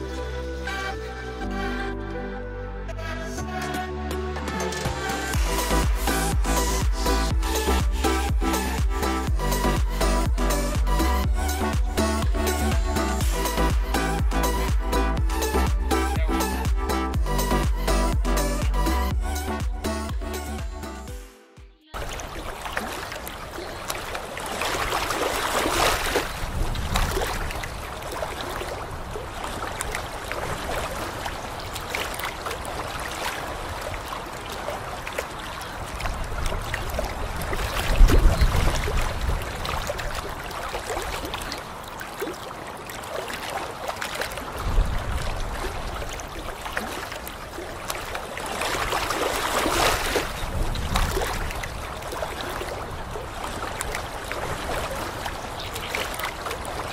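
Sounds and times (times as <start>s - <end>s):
low rumble: 5.3s - 21.2s
waves lapping on pebble shore: 22.0s - 56.9s.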